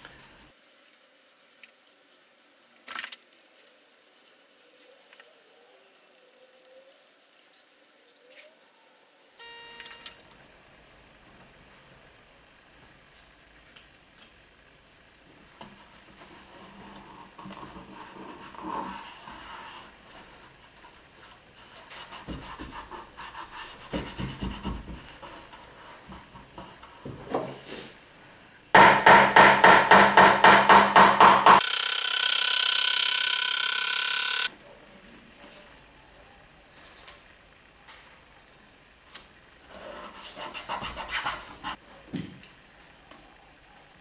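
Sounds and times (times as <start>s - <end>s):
stuttering pulsing noise: 31.6s - 34.5s.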